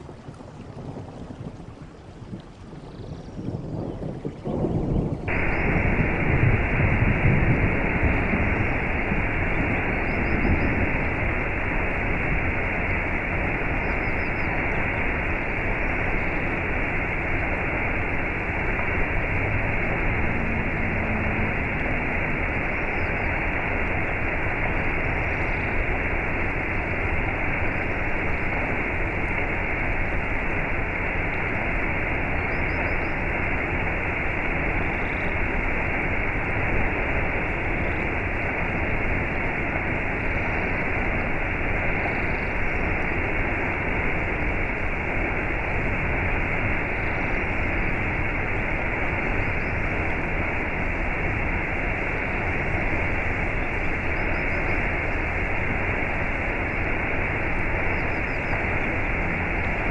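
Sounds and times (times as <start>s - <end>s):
waterfall splashing into pool: 5.3s - 59.9s.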